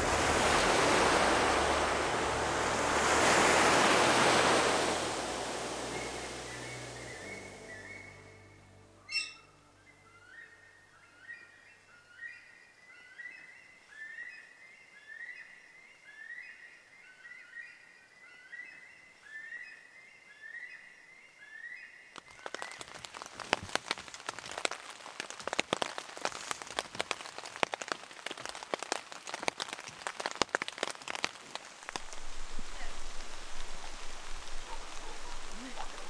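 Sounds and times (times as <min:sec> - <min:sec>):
rain spattering on a surface: 0:00.0 - 0:07.6, 0:22.2 - 0:36.0.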